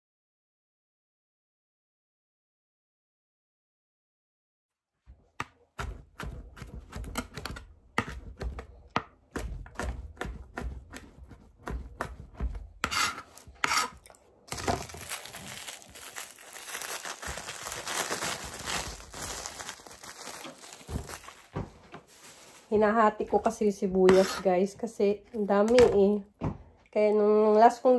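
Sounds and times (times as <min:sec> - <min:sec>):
knife chopping on plastic board: 0:05.2 - 0:14.9, 0:24.0 - 0:26.7
plastic bag crinkling: 0:14.5 - 0:22.8.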